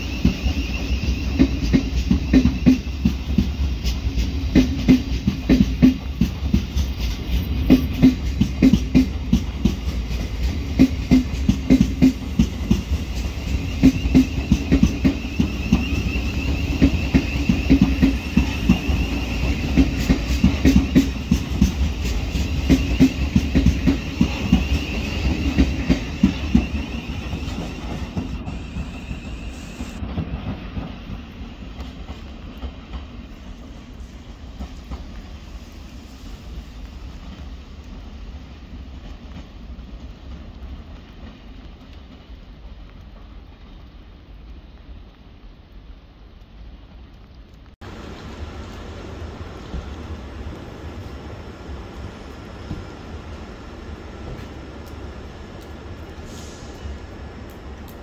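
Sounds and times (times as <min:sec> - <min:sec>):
high-pitched wheel squeal: 0:00.0 - 0:03.0, 0:13.4 - 0:21.2, 0:22.2 - 0:30.0
train wheels clattering over rail joints: 0:00.0 - 0:33.8.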